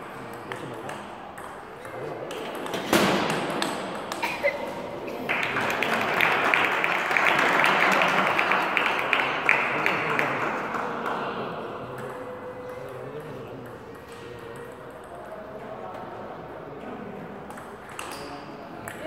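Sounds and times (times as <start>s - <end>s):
spectators clapping: 5.1s - 11.5s.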